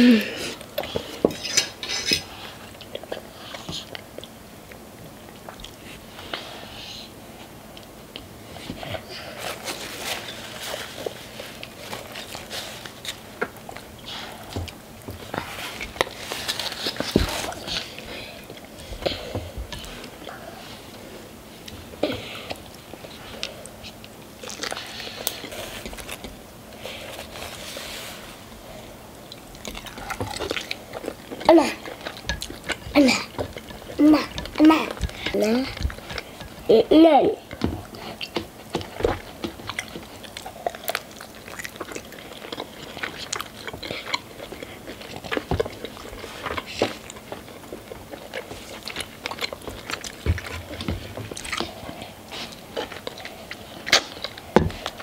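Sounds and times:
noodles slurping: 22.3s - 55.0s
chewing and biting: 22.5s - 26.4s, 29.2s - 36.7s, 37.5s - 55.0s.

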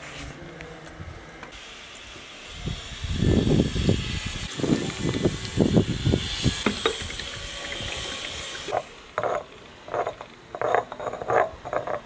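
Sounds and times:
steady hiss: 1.5s - 10.6s
pestle scraping in a mortar: 6.4s - 12.0s.

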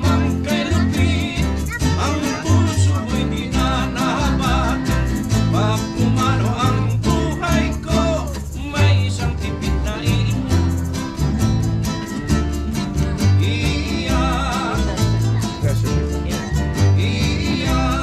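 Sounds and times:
person singing wavering melody: 0.0s - 9.3s
guitar accompaniment: 0.0s - 18.0s.

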